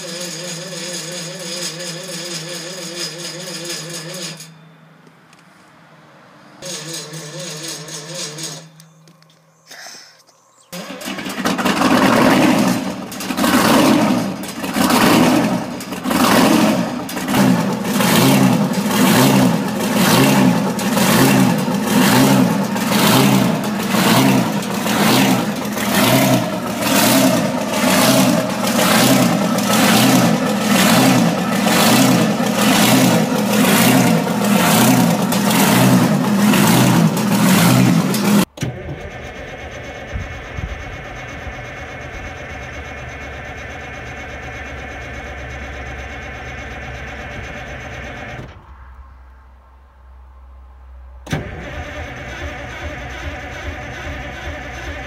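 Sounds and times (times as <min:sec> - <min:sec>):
steady engine sound: 0:00.0 - 0:55.0
diesel engine running loudly: 0:10.7 - 0:48.6, 0:51.2 - 0:55.0.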